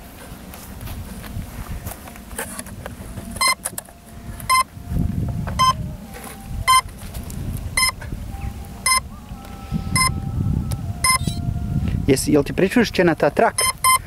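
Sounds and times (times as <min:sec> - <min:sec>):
low rumble: 0:00.6 - 0:13.1
short electronic beeps: 0:03.4 - 0:03.6, 0:04.5 - 0:04.7, 0:05.6 - 0:05.8, 0:06.7 - 0:06.9, 0:07.8 - 0:08.0, 0:08.8 - 0:09.1, 0:10.0 - 0:10.2, 0:11.0 - 0:11.4, 0:13.5 - 0:14.0.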